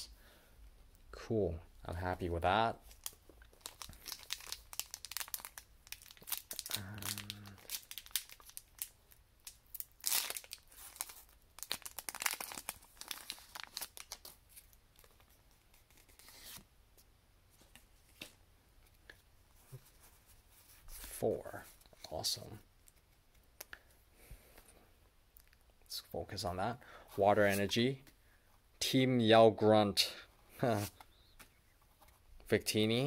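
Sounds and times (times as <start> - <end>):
foil wrapper tearing and crinkling: 3.0 - 8.9, 9.7 - 14.3.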